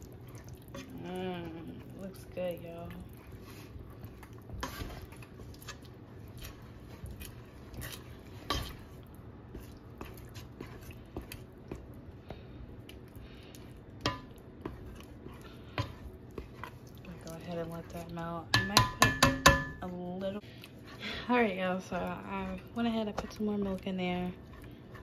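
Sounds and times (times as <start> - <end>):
spoon scraping a metal pot: 4.5 - 5.8
spoon knocking on pot: 18.5 - 19.8.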